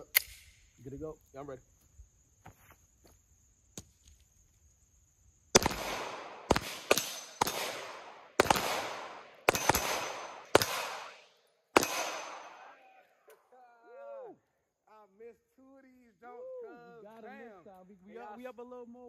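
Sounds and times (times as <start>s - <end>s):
pistol shots: 5.6s - 12.8s.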